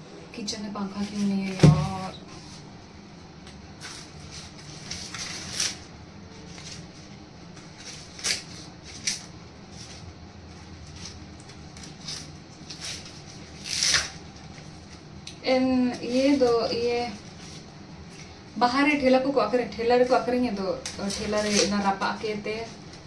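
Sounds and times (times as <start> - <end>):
low steady hum: 0.0 - 23.0
corn cobs rustling and scraping: 3.8 - 5.8, 6.4 - 15.0, 21.0 - 22.8.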